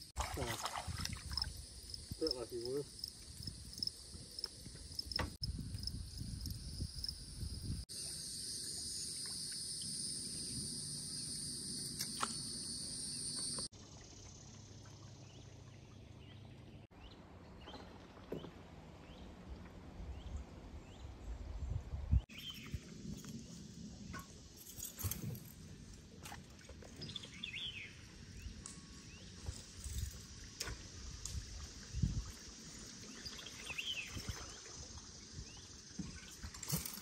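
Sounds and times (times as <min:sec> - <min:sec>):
insects droning: 0:00.1 - 0:16.3, 0:27.0 - 0:37.0
wind rumble on microphone: 0:00.7 - 0:02.3, 0:03.2 - 0:07.9, 0:19.1 - 0:24.4, 0:28.3 - 0:36.6
ticking insect calls: 0:01.3 - 0:14.8.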